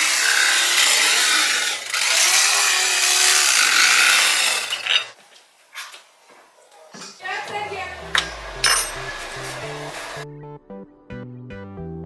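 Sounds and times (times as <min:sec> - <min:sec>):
electric carving knife sawing: 0:00.0 - 0:05.1.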